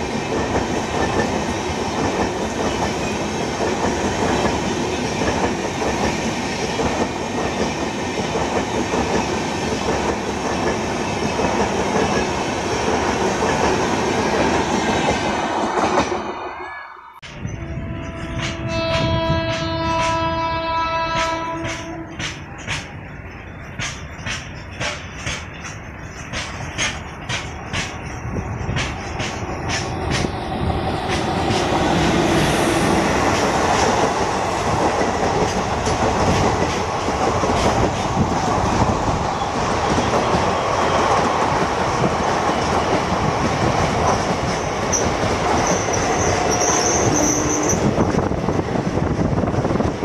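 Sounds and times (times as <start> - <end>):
train wheels clicking over rail joints: 0.0 - 16.2, 21.1 - 50.0
train coaches rolling rumble: 0.0 - 50.0
high wheel squeal: 44.9 - 47.9.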